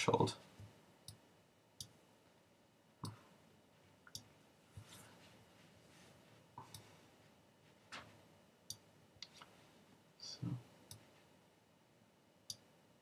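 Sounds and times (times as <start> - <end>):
person speaking: 0.0 - 0.5.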